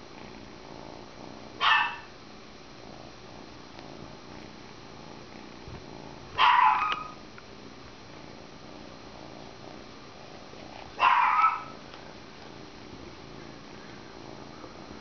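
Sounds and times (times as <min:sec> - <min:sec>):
kitten purring: 0:00.0 - 0:15.0
dog barking: 0:01.6 - 0:02.1, 0:06.4 - 0:07.2, 0:11.0 - 0:11.8.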